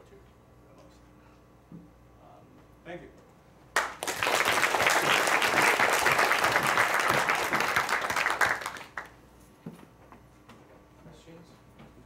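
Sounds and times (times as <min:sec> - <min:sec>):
audience applauding: 0:03.8 - 0:09.2.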